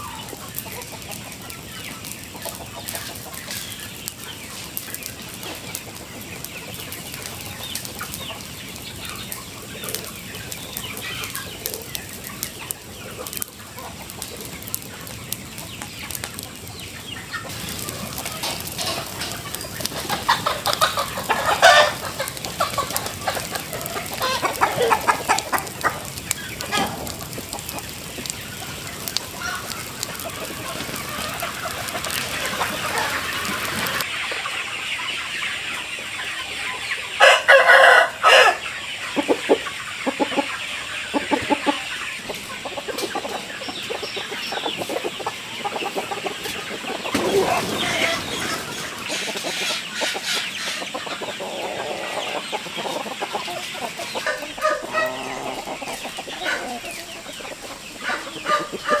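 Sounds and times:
chickens clucking: 0.0s - 59.0s
rooster crowing: 37.2s - 38.6s, 54.3s - 55.7s.

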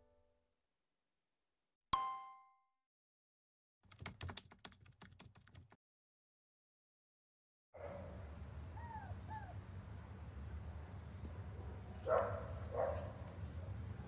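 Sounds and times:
bright ding: 2.0s - 2.6s
computer keyboard typing: 3.9s - 5.8s.

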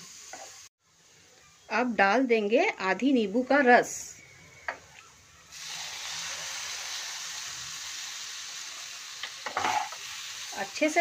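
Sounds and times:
frying pan sizzling: 0.0s - 0.7s, 5.5s - 11.0s.

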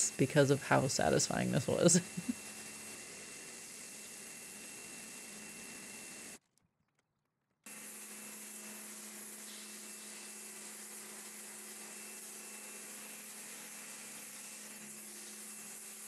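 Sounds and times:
pressure washer motor hum: 0.0s - 6.4s, 7.7s - 16.0s.

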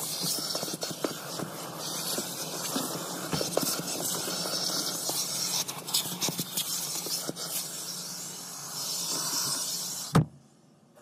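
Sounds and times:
scratches and clicks: 0.0s - 7.9s
vacuum cleaner running: 0.0s - 10.2s.

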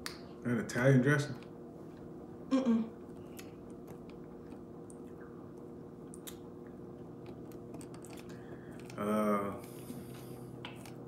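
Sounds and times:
steady low hum: 0.0s - 11.0s
wet mouth clicks and lip smacks: 6.1s - 6.5s.

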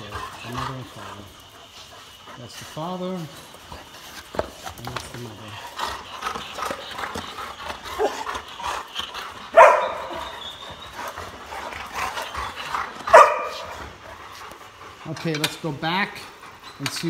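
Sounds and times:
quiet dog vocal sounds: 0.0s - 17.0s
dog barking loudly: 9.5s - 10.2s, 13.0s - 13.8s.

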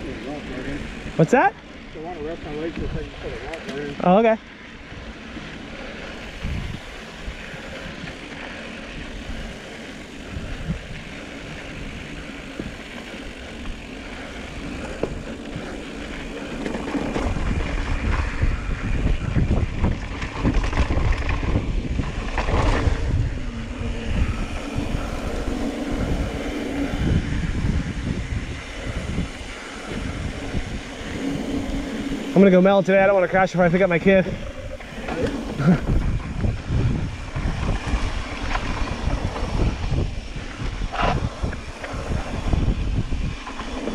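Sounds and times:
bike tyres rolling over dirt: 0.0s - 43.9s
wind rushing over microphone: 0.0s - 43.9s
bike knocks and rattles: 14.7s - 23.5s.

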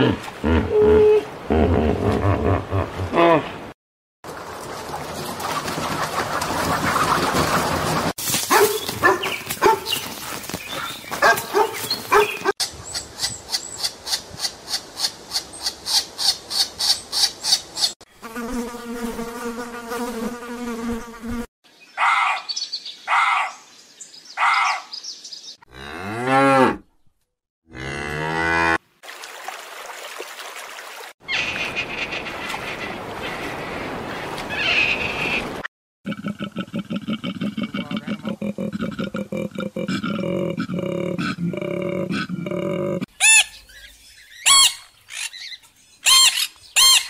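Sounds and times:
chickens clucking: 4.9s - 8.2s
cattle mooing: 27.7s - 28.8s.

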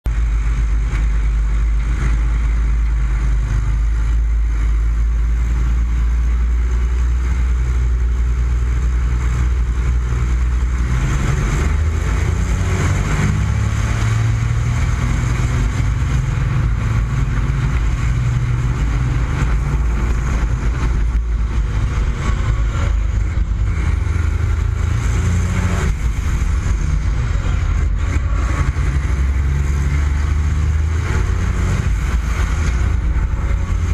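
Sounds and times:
diesel engine running hard: 0.0s - 33.9s.

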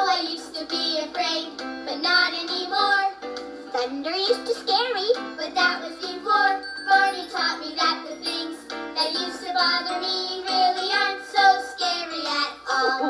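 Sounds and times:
upbeat backing music: 0.0s - 13.0s
children singing: 5.5s - 13.0s.

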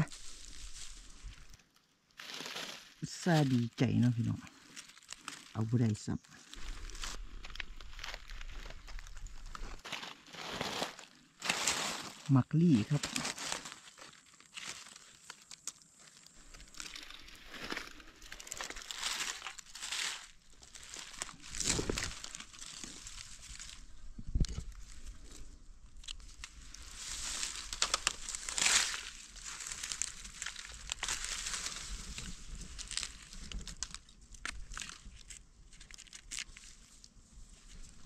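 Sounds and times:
dry leaves rustling and crackling: 0.0s - 38.0s
knife digging in leaf litter: 9.8s - 15.4s.

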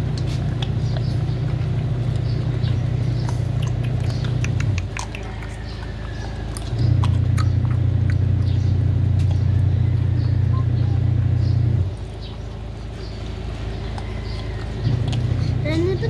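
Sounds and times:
puppy chewing and crunching: 0.0s - 16.0s
loud low rumble: 5.7s - 16.0s.

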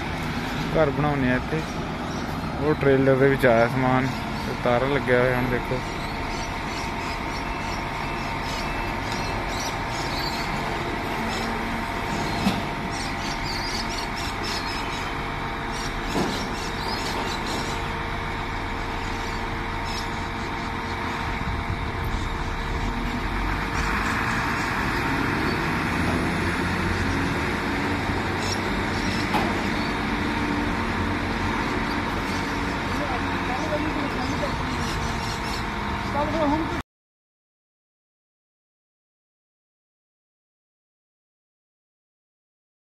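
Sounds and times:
truck engine running: 0.0s - 36.8s.

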